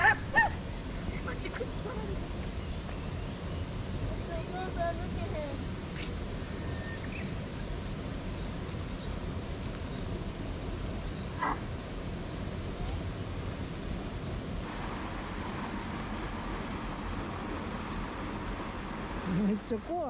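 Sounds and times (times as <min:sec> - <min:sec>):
stream rushing through sluice: 0:00.0 - 0:20.0
wind-like rumble: 0:00.0 - 0:20.0
faint bird chirps: 0:06.4 - 0:13.0.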